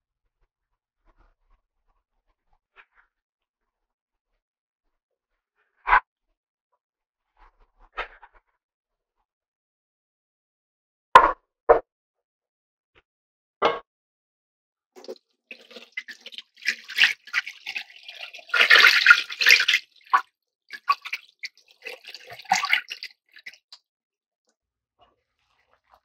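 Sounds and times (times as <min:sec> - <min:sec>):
water splashing and pouring: 0:15.0 - 0:23.8.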